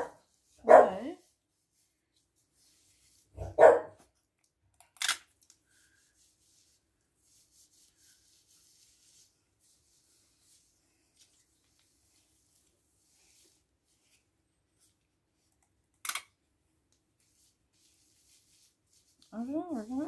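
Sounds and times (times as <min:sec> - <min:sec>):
dog barking: 0:00.0 - 0:01.1, 0:03.4 - 0:04.0.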